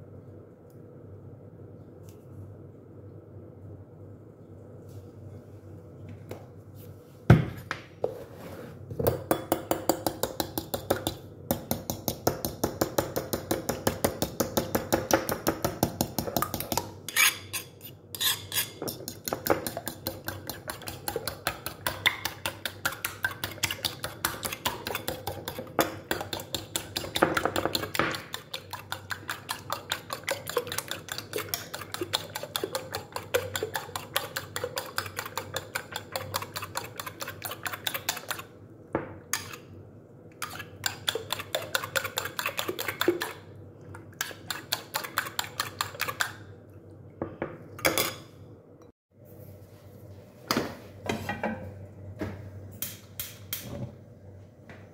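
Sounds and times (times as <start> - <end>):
whisk beating eggs in ceramic bowl: 9.1 - 38.6, 40.4 - 43.5, 44.1 - 46.4.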